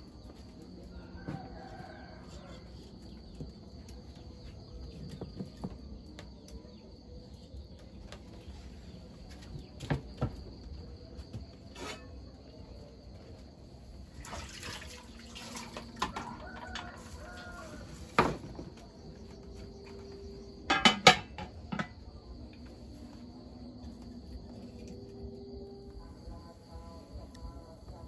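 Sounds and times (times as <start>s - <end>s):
water splashing: 14.2s - 16.0s
kitchenware knocking and clattering: 20.7s - 22.0s.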